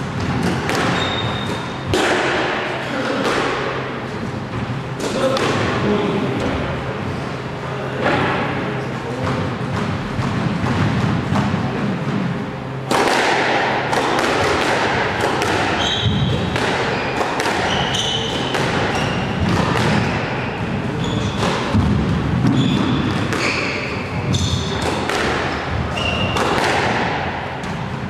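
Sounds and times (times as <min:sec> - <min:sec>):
squash ball hit by rackets: 0:00.0 - 0:06.6, 0:09.2 - 0:28.0
shoes squeaking on wooden floor: 0:00.9 - 0:01.5.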